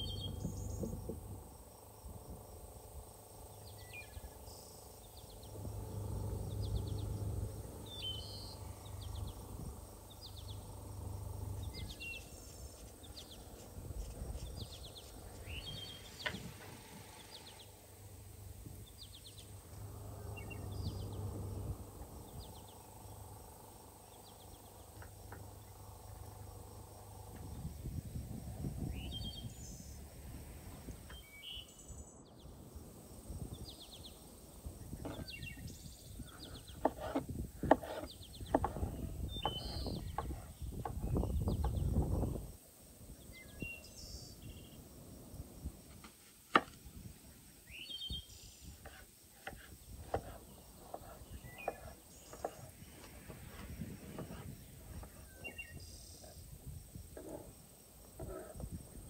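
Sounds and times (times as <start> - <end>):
birds chirping: 0.0 - 45.8, 46.6 - 59.0
knife chopping on wooden board: 36.8 - 38.8.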